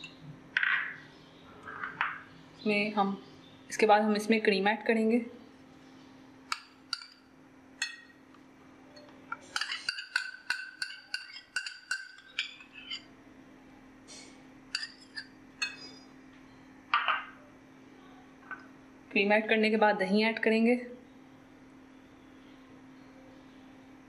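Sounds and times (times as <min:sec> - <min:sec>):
metal spoon clinking against glass: 0:09.0 - 0:13.1.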